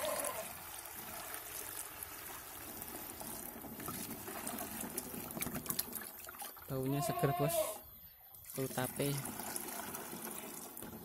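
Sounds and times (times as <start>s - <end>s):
liquid pouring and splashing: 0.0s - 6.9s, 8.4s - 11.0s.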